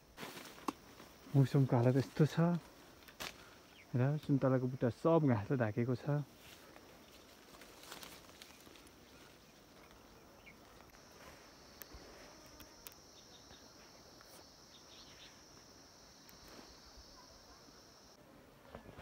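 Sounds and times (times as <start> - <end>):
high-pitched insect drone: 6.2 - 18.2
faint ticks: 11.7 - 13.3.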